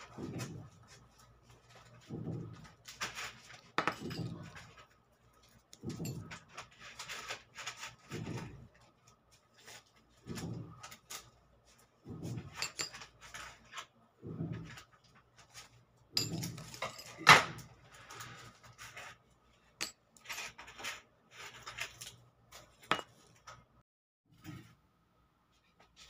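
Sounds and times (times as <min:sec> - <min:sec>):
metal rings clinking: 0:16.2 - 0:17.3.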